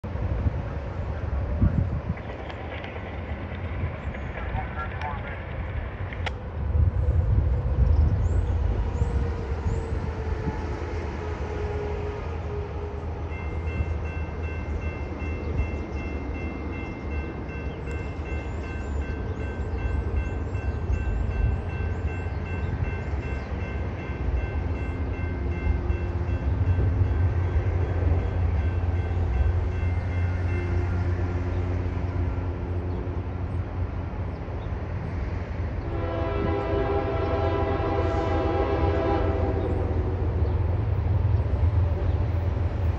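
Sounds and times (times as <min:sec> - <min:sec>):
locomotive engines rumbling: 0:00.0 - 0:42.9
train air horn chord: 0:35.8 - 0:39.8.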